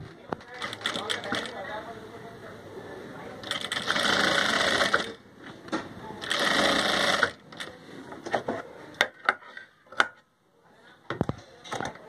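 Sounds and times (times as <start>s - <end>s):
sewing machine stitching: 3.4s - 5.2s, 6.2s - 7.7s.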